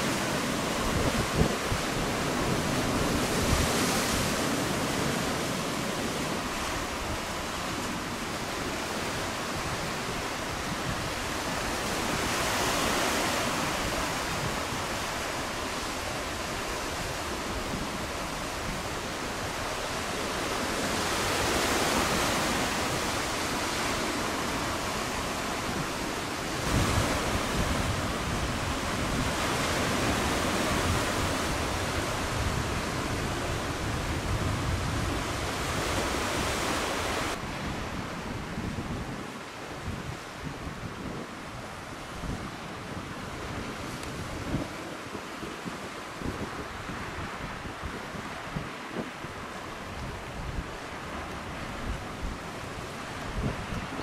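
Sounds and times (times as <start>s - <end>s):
surf breaking on rocky shore: 0.0s - 54.0s
wind gust on microphone: 0.0s - 54.0s.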